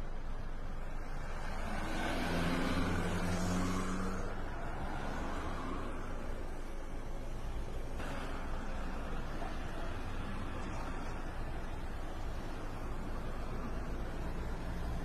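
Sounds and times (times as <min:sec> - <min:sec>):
road traffic hum: 0:00.0 - 0:15.0
car engine passing: 0:01.4 - 0:05.9.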